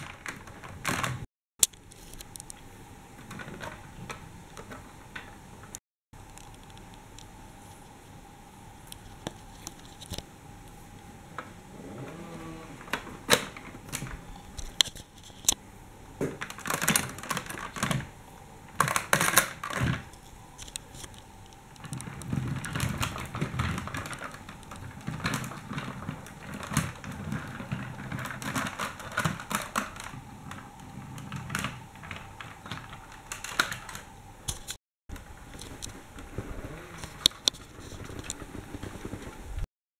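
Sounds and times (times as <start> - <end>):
plastic toy clicking and clattering: 16.4 - 18.1, 18.7 - 34.8.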